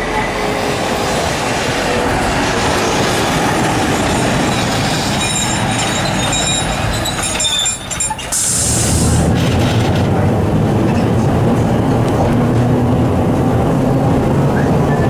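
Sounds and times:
low rumble inside tram: 0.0s - 15.0s
tram wheels on rails: 0.0s - 15.0s
faint high wheel squeals: 4.0s - 8.6s.

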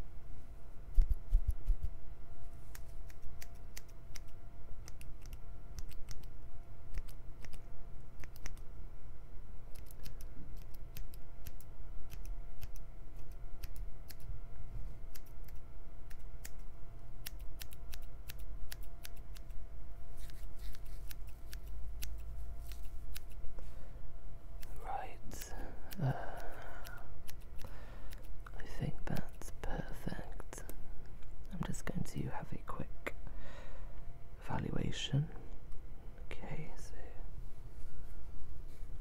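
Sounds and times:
faint steady hum: 0.0s - 39.0s
scissors snipping: 8.2s - 8.7s, 9.7s - 14.3s, 15.1s - 19.6s, 20.2s - 23.4s, 24.6s - 28.3s.

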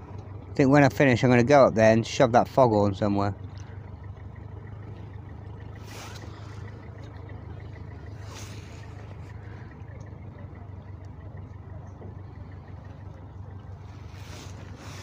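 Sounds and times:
boat motor humming: 0.0s - 15.0s.

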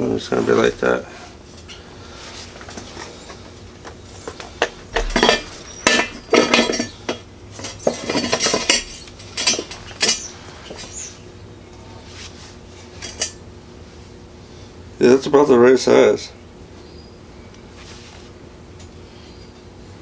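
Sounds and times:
metallic clanks of tubing: 4.6s - 10.8s.

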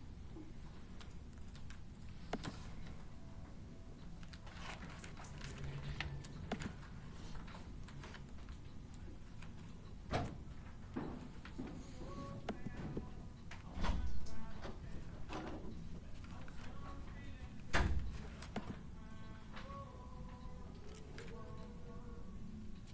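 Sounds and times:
low room hum: 0.0s - 22.9s
keyboard typing: 4.0s - 10.0s.

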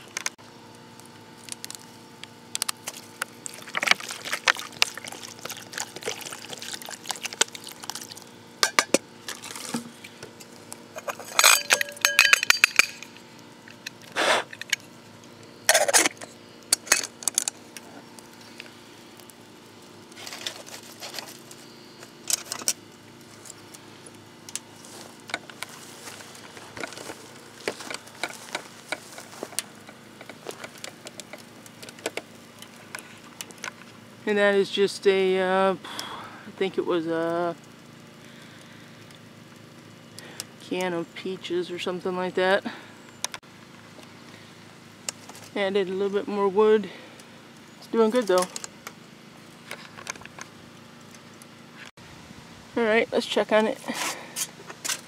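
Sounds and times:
metal kettle clinking: 11.0s - 13.1s.

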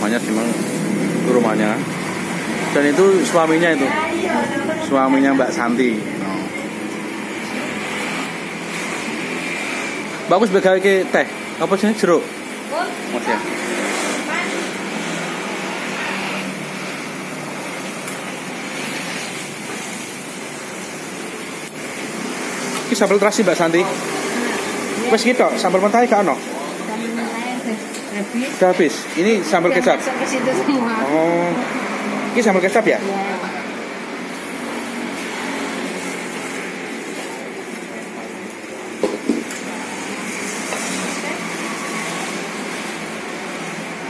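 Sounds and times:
machine-like hum and rush: 0.0s - 11.5s
electric fan blowing air: 0.0s - 44.0s.

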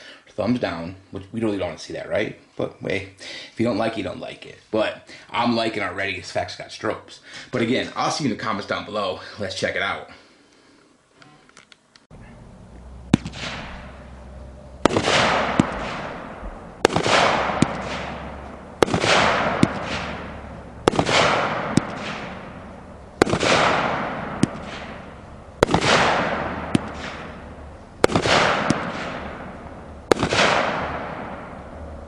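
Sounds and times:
small firework pops: 13.1s - 13.9s, 16.8s - 20.3s, 20.9s - 22.4s, 23.2s - 25.0s, 25.6s - 27.4s, 28.0s - 29.3s
firework reports: 13.1s - 32.0s
firework hiss: 14.8s - 31.5s.

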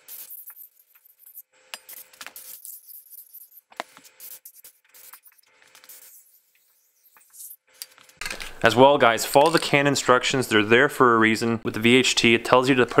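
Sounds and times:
spray paint can hissing: 0.0s - 2.0s.

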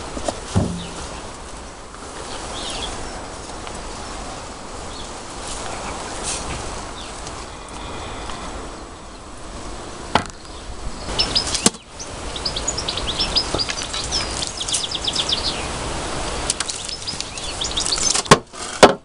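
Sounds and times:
small bird chirping: 10.3s - 18.3s
spade scooping compost: 16.4s - 19.0s.

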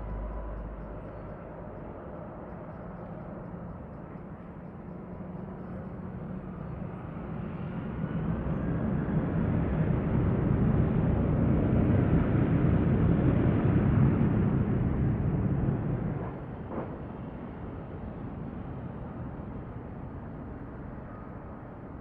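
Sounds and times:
jet engines rumbling: 5.8s - 19.8s.

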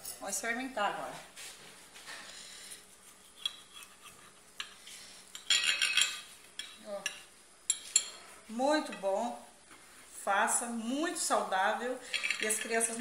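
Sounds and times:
knife and fork clinking on plate: 5.4s - 8.2s.

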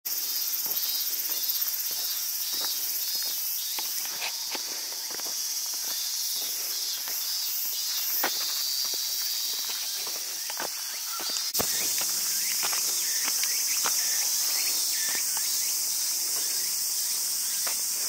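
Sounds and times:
footsteps on paved path: 0.1s - 18.0s
insects droning: 0.1s - 18.0s.

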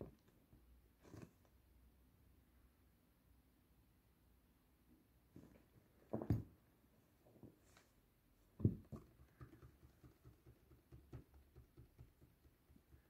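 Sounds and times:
light paw taps and patter: 8.6s - 13.0s.

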